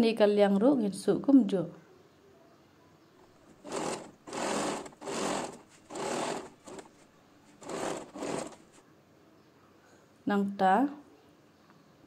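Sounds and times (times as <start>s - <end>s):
sewing machine stitching: 3.5s - 7.0s, 7.6s - 8.8s.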